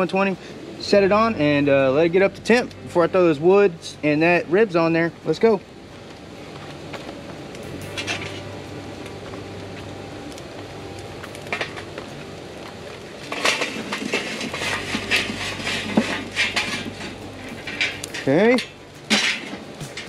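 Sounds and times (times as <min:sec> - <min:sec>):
charcoal clattering into firebox: 0:07.5 - 0:08.5, 0:11.2 - 0:12.1, 0:12.8 - 0:20.0
metal chimney clinks: 0:07.7 - 0:08.6, 0:13.2 - 0:20.0.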